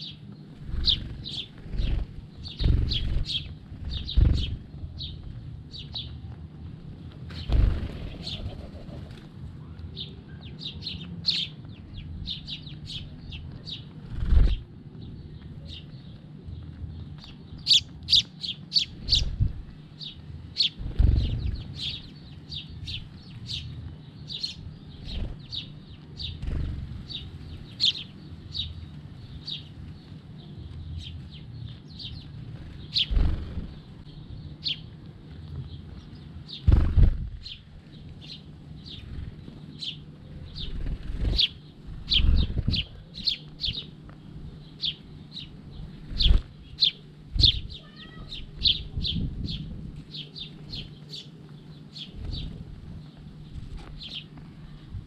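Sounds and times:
sparrows chirping: 0.0 - 55.0
wings fluttering: 0.5 - 5.4, 7.2 - 9.4, 12.9 - 14.7, 20.5 - 22.1, 24.9 - 28.0, 32.2 - 34.1, 35.8 - 44.2, 45.9 - 54.6.

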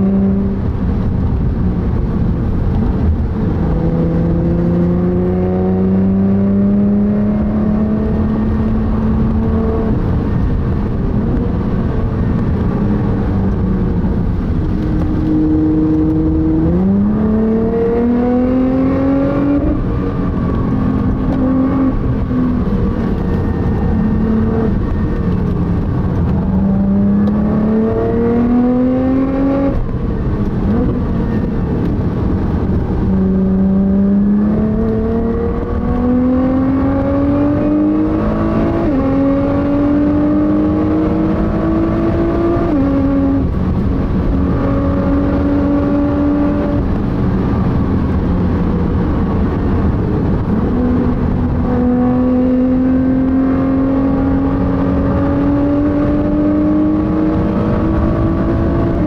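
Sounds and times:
car engine accelerating hard: 0.0 - 59.0.

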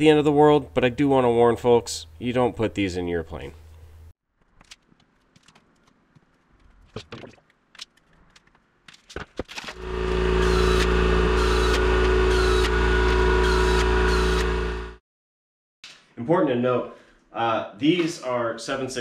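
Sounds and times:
pneumatic drill drilling metal: 9.8 - 15.0.

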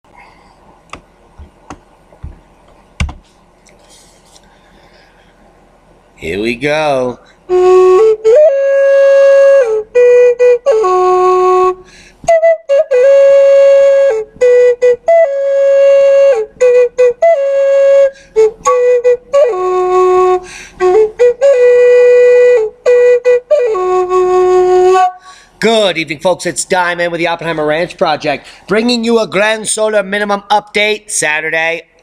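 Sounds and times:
solo wind instrument melody: 7.5 - 25.2.

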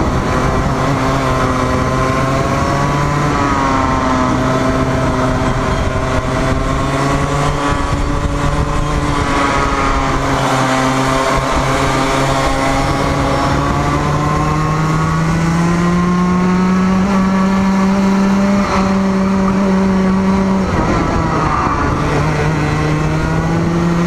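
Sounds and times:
kart engine revving: 0.0 - 24.0.

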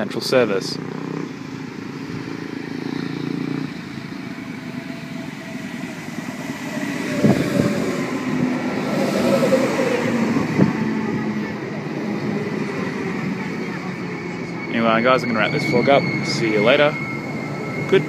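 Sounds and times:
electric train running: 1.3 - 18.0.

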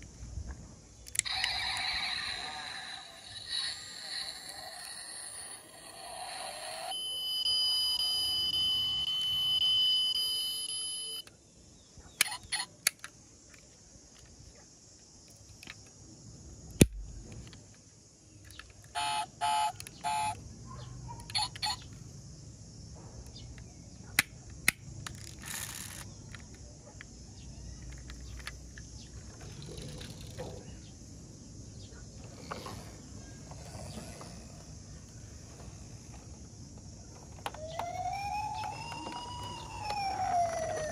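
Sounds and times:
toy car electronic beeping: 1.1 - 11.3, 12.2 - 12.7, 18.9 - 20.4, 21.2 - 21.9, 25.4 - 26.1, 37.4 - 40.9.

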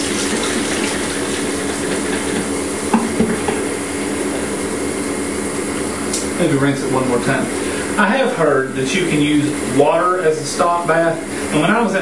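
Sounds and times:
tap water running into sink: 0.0 - 3.6
knocks against sink: 2.9 - 3.6.

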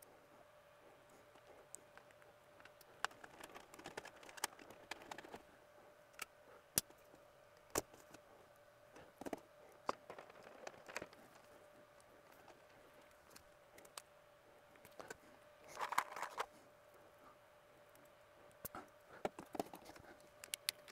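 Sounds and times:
faint steady hum: 0.0 - 20.9
light clicks and taps on wiring: 17.9 - 20.9.

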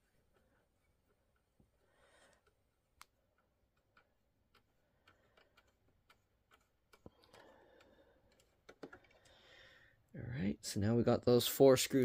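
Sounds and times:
screwdriver clicks and ticks: 2.3 - 9.3.

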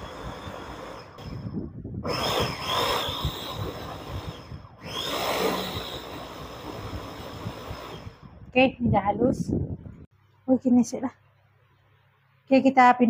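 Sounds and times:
electric food chopper grinding: 0.0 - 8.4.

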